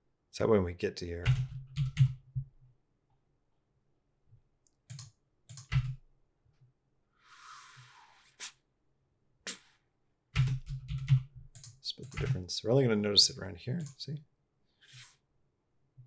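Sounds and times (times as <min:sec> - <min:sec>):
computer keyboard and mouse clicks: 0:04.7 - 0:06.0, 0:10.4 - 0:12.4.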